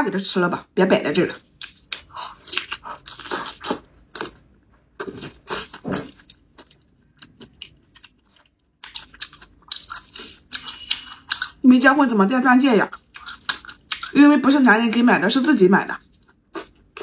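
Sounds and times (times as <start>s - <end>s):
mouth chewing with crunching: 1.3s - 11.6s, 12.9s - 14.8s, 16.0s - 17.0s.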